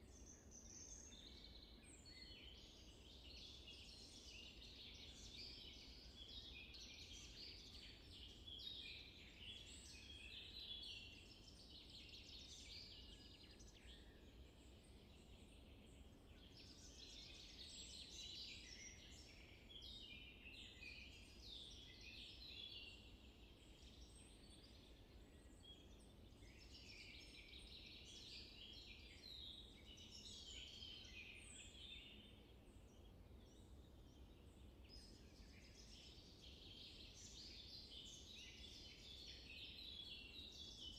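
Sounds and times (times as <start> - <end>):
birds chirping and twittering: 0.0 - 40.9.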